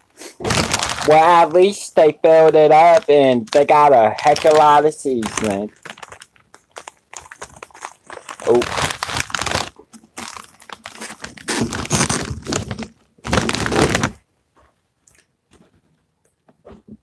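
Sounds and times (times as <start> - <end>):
snack bag crinkling: 0.4 - 1.7, 2.3 - 14.2.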